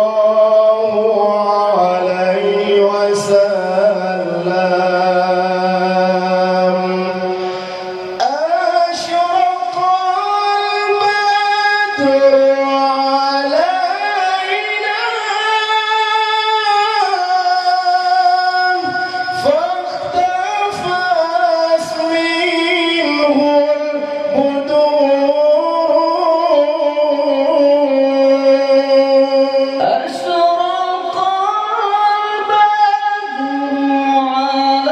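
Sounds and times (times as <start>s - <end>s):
man singing into a microphone: 0.0s - 34.9s.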